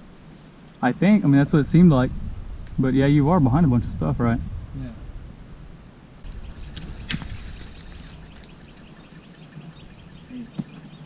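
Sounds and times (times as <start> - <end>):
leaves crunching underfoot: 6.2 - 9.5
twigs cracking: 6.2 - 9.7.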